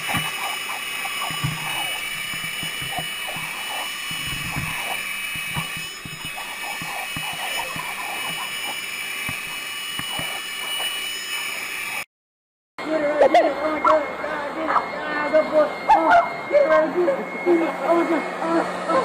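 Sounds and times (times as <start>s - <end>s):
dog biting at nozzle: 0.0s - 9.4s
electric leaf blower whining: 0.0s - 12.1s, 12.8s - 19.0s.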